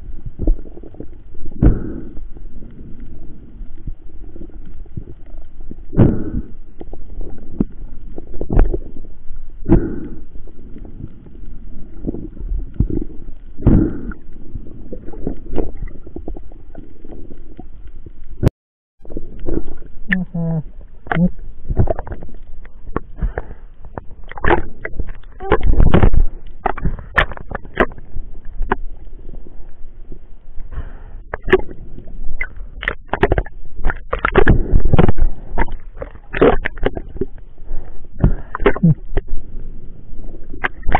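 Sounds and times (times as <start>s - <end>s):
underwater rumble of moving water: 0.0s - 40.9s
underwater knocks and clicks: 4.6s - 9.2s, 21.0s - 29.4s, 31.3s - 37.4s, 38.2s - 39.4s, 40.4s - 40.9s.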